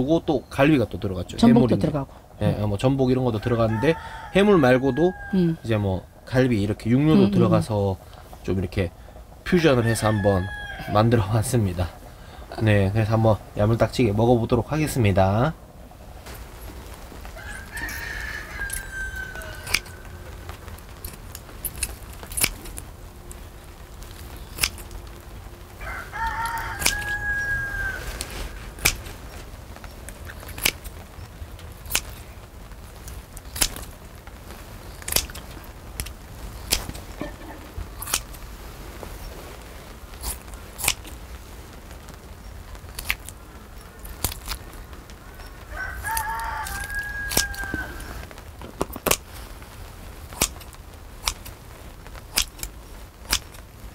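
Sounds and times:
rooster crowing: 3.4 - 5.8, 9.6 - 11.3, 17.3 - 20.5, 25.8 - 28.9, 45.2 - 48.3
scissors and tongs clicking: 19.6 - 19.9, 21.0 - 22.8, 24.6 - 25.0, 26.8 - 27.2, 28.8 - 29.0, 30.5 - 30.9, 31.9 - 32.2, 33.6 - 33.9, 35.0 - 36.9, 38.0 - 38.3, 40.2 - 41.1, 50.4 - 51.5, 52.3 - 52.7, 53.3 - 53.6.

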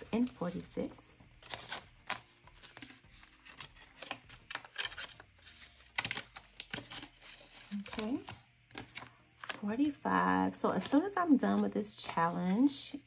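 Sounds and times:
paper crinkling: 0.0 - 10.0
banknotes rustling and flicking: 0.0 - 13.0.

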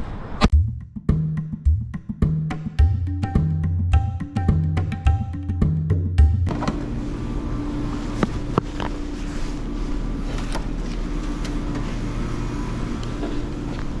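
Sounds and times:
city street traffic rumble: 6.5 - 14.0.

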